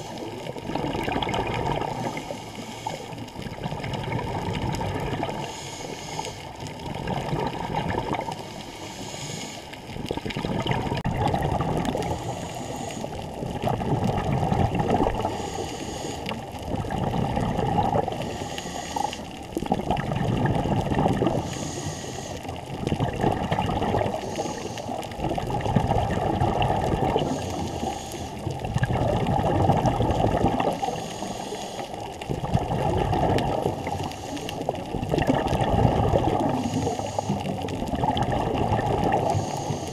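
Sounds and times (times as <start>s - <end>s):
bubbling exhale underwater: 0.0s - 39.9s
regulator inhale hiss: 1.9s - 3.5s, 5.4s - 6.8s, 8.3s - 9.9s, 12.0s - 13.4s, 15.2s - 16.6s, 18.1s - 19.4s, 21.4s - 22.6s, 24.0s - 25.2s, 27.1s - 28.6s, 30.6s - 32.2s, 33.7s - 34.8s, 36.4s - 37.7s, 39.2s - 39.9s.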